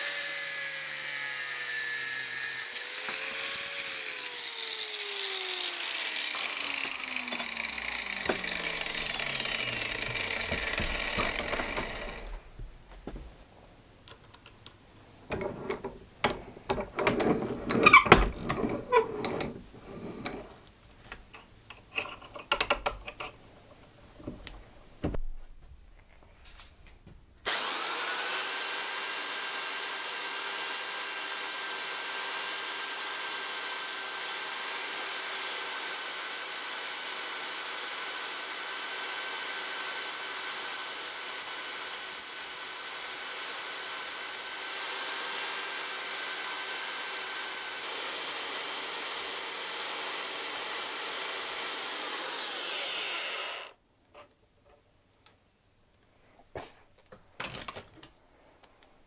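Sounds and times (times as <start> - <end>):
power tool motor whine: 0.0 - 12.4, 27.5 - 53.8
belt file grinding metal: 0.1 - 12.4, 15.3 - 20.6, 46.2 - 53.7.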